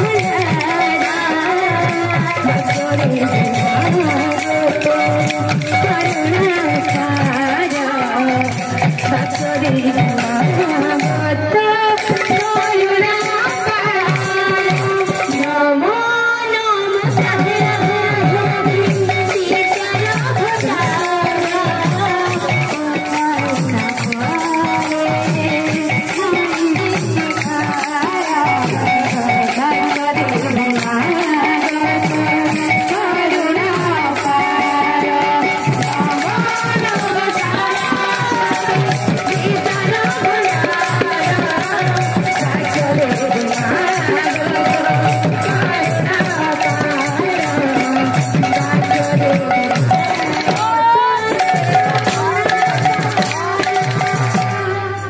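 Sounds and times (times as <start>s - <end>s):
jingling hand cymbals: 0.0s - 55.0s
barrel drum beat: 17.1s - 54.6s.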